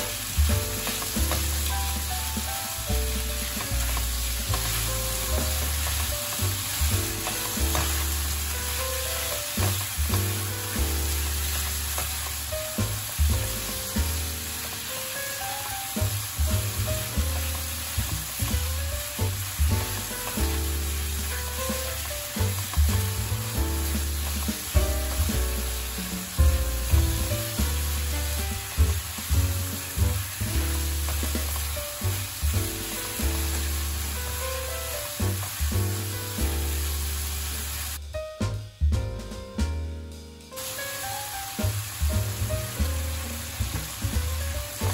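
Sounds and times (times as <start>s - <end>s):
vegetables sizzling in hot oil: 0.0s - 38.0s, 40.6s - 44.9s
spatula scraping and knocking pan: 0.1s - 14.9s, 16.0s - 34.2s.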